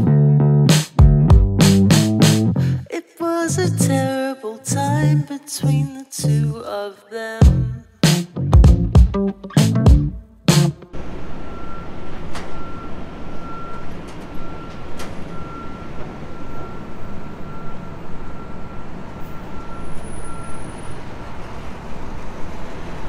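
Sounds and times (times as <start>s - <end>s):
heavy vehicle engine rumbling: 10.8s - 23.0s
street traffic: 10.8s - 23.0s.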